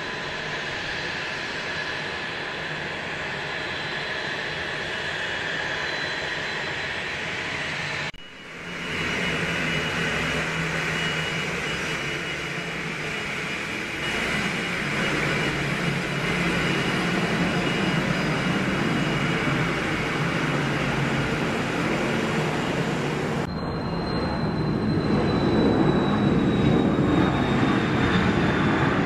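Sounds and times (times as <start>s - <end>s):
jet engines whining: 0.0s - 29.0s.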